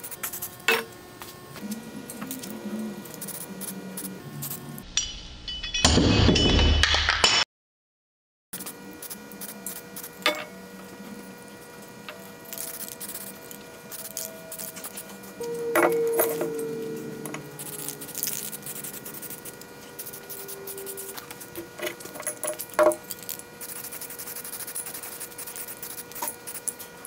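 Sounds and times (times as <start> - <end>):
metal parts clanking: 21.0 - 23.3.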